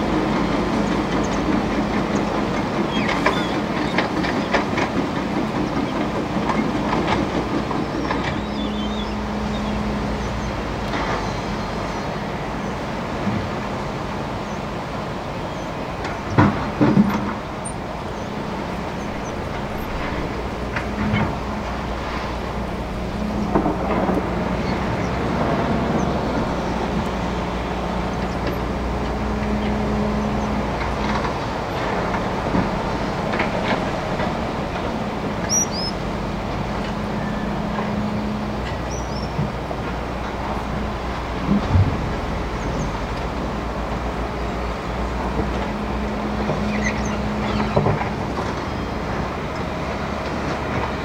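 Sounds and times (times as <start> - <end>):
excavator diesel engine running: 0.0 - 51.0
river water rushing: 0.0 - 51.0
bird chirping: 7.9 - 10.6, 35.4 - 36.0.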